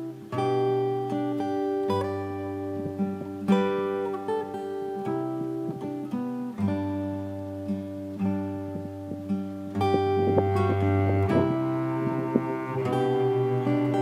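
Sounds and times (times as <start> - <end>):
acoustic guitar picking: 0.0 - 14.0
low bass notes: 8.6 - 14.0.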